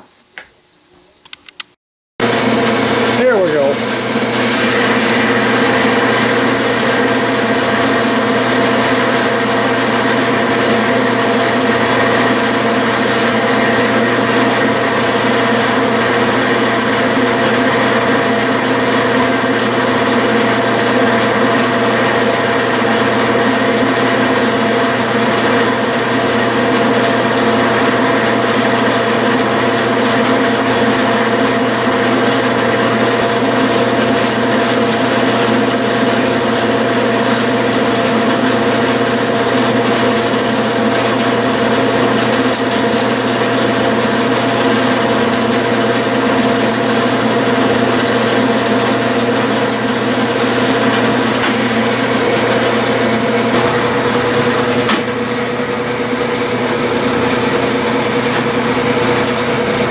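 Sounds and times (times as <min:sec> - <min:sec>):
thin high whine: 0:02.2 - 0:14.8
lathe running hum: 0:02.2 - 0:59.9.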